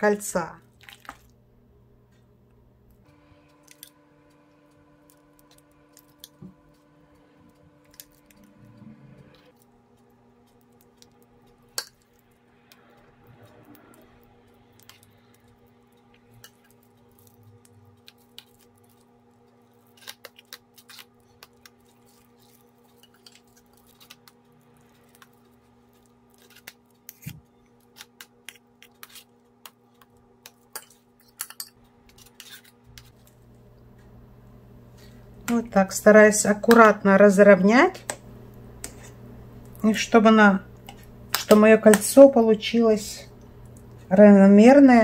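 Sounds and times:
steady low hum: 0:00.3 - 0:45.0
metal spoon scraping metal pan: 0:30.4 - 0:33.2.

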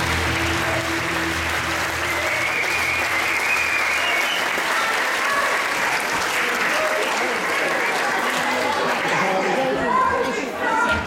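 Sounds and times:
music: 0:00.0 - 0:04.4
audience applauding: 0:00.0 - 0:09.8.

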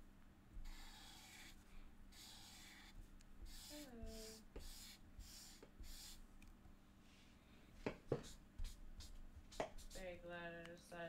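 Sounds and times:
marker scratching on paper: 0:00.6 - 0:06.2, 0:08.1 - 0:10.1.

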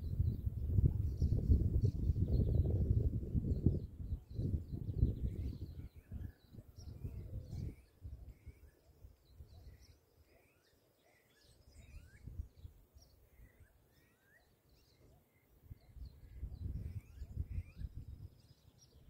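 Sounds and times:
wind gusts on microphone: 0:00.0 - 0:09.9, 0:11.8 - 0:12.8, 0:15.7 - 0:19.0
birds chirping and whistling: 0:03.5 - 0:19.0.

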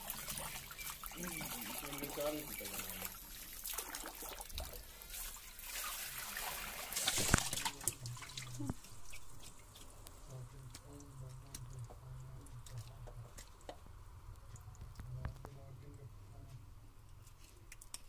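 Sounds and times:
water splashing in a plastic tub: 0:00.0 - 0:13.8
water dripping: 0:00.0 - 0:15.4
small wet clicks: 0:07.2 - 0:15.5, 0:17.1 - 0:18.0.

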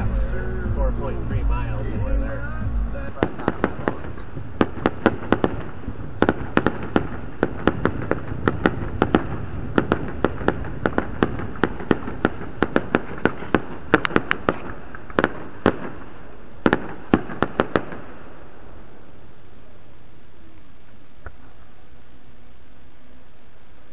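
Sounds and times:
low rumble: 0:00.0 - 0:11.6
fireworks bangs and pops: 0:03.1 - 0:18.9.

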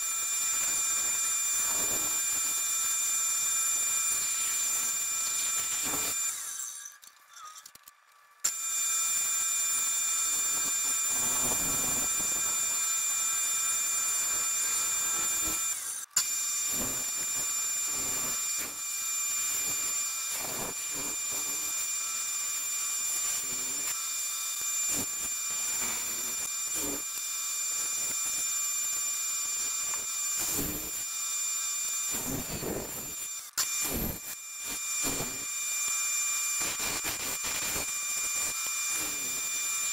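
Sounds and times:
saw blade cutting wood: 0:00.0 - 0:18.8, 0:19.6 - 0:28.4
bandsaw whining: 0:00.0 - 0:39.9.

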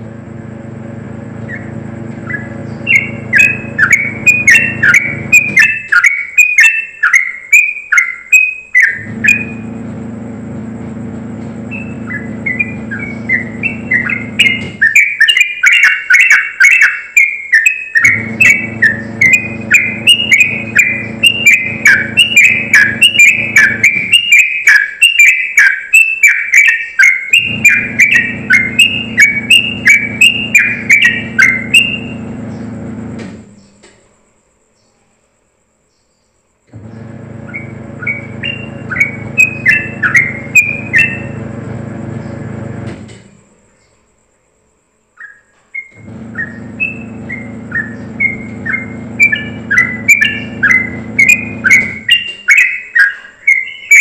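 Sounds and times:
bird singing whistled notes: 0:01.4 - 0:09.8, 0:11.7 - 0:32.8, 0:36.9 - 0:41.5, 0:45.2 - 0:54.0.

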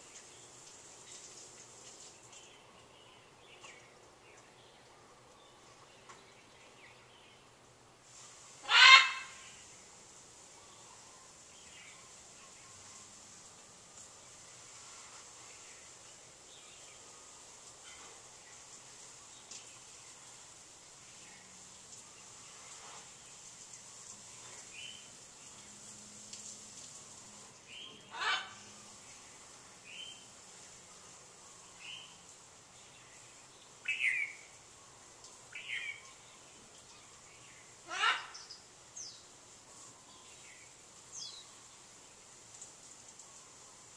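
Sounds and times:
macaw squawking: 0:08.6 - 0:09.4, 0:28.1 - 0:28.6, 0:37.9 - 0:38.4.

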